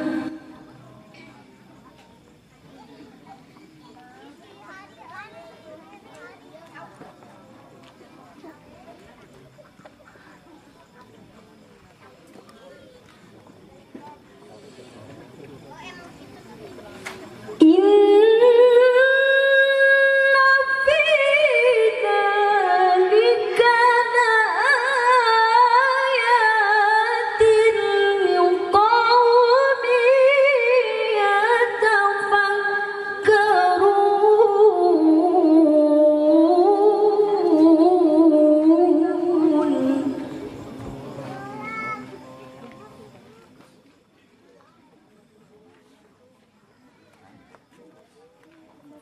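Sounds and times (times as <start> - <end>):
woman reciting melodically: 0.0 - 0.8, 17.6 - 40.8.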